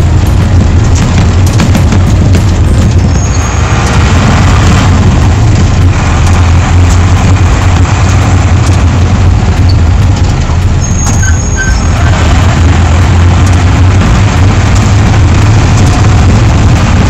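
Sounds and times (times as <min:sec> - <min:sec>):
diesel engine drone: 0:00.0 - 0:17.0
road noise: 0:00.0 - 0:17.0.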